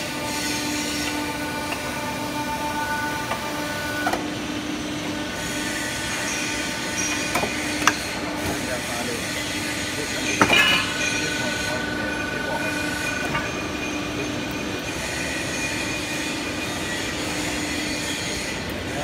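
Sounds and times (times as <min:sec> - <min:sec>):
high steady machine squeal: 0:00.0 - 0:19.0
machine humming: 0:00.0 - 0:19.0
sharp metallic clank: 0:10.2 - 0:11.8.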